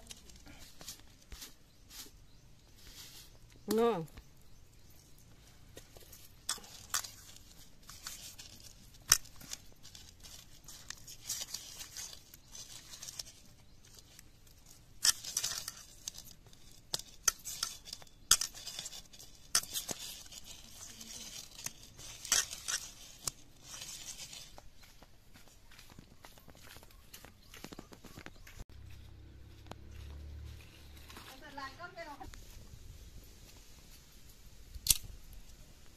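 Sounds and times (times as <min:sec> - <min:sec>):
hands mixing wet fish: 0:03.3 - 0:29.1.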